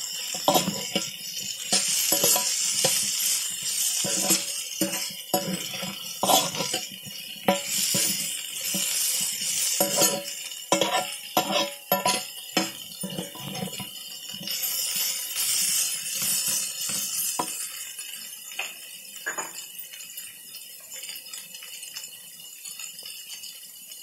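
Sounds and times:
ladle clinking and scraping pan: 0.0s - 17.8s
potatoes frying hiss: 0.0s - 24.0s.

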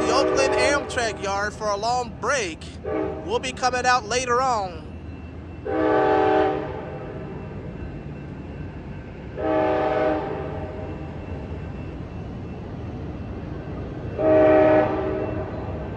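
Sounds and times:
train horn blast: 0.0s - 0.9s, 2.8s - 3.3s, 5.6s - 7.1s, 9.4s - 10.8s, 14.2s - 15.4s
low rumble of train: 0.0s - 15.9s.

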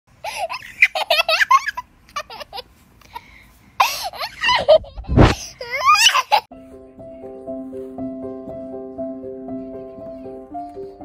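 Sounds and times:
small child giggling: 0.2s - 6.5s.

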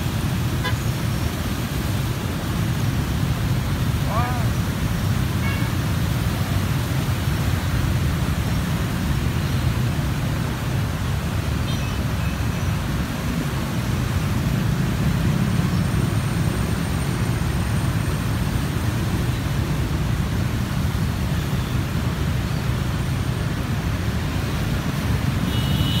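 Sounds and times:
motorbike engines: 0.0s - 26.0s
water washing around wheels: 0.0s - 26.0s.

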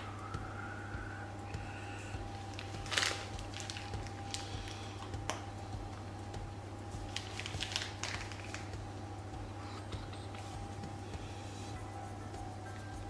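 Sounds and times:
low hum: 0.0s - 13.0s
piping bag squishing: 2.5s - 5.5s, 7.0s - 8.8s.

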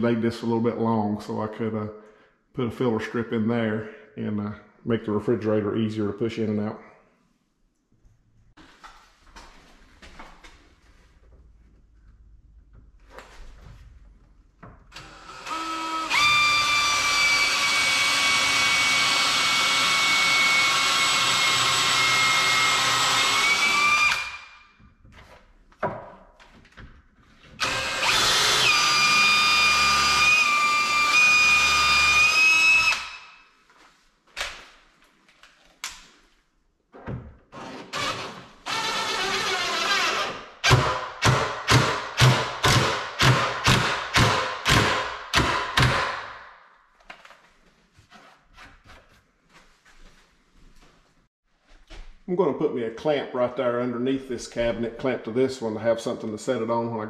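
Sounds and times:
cordless drill whining: 14.9s - 24.6s, 27.6s - 33.3s, 37.6s - 40.8s.

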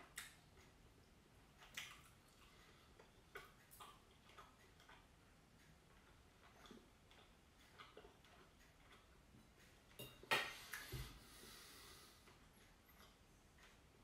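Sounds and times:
cutlery clicking on plate: 10.0s - 10.6s.

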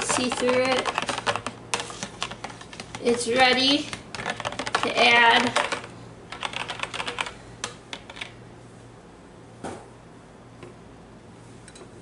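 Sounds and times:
whisk clicking and tapping: 0.0s - 8.3s.

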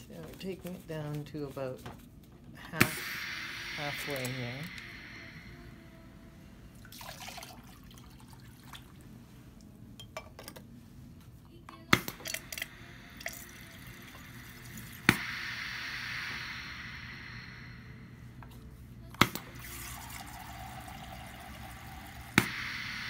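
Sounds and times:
water jetting into beaker: 2.8s - 6.0s, 19.2s - 23.0s.

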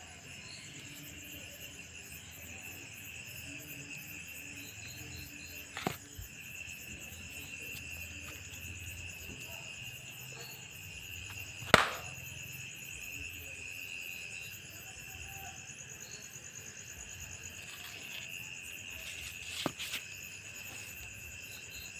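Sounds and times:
night insects chirring: 0.0s - 21.9s
sandal slapping against wall: 11.7s - 12.2s.

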